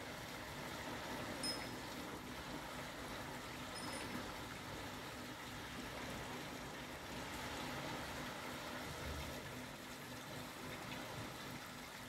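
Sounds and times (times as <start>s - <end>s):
gentle surf on beach: 0.0s - 9.4s.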